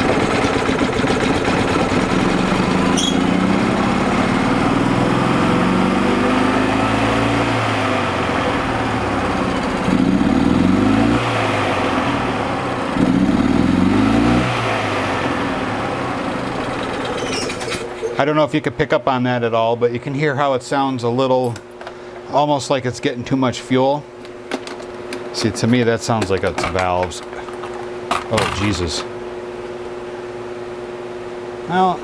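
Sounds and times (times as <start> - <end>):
golf cart engine running: 0.0 - 18.2.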